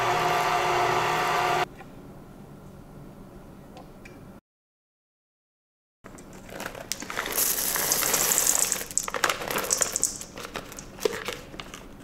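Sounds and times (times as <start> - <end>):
plastic bag crinkling: 6.2 - 11.9
chips pattering into metal bowl: 6.4 - 11.8.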